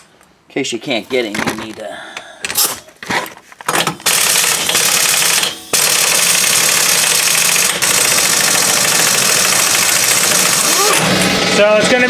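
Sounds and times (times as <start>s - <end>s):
impact wrench rattling: 1.2s - 1.8s, 2.4s - 11.4s.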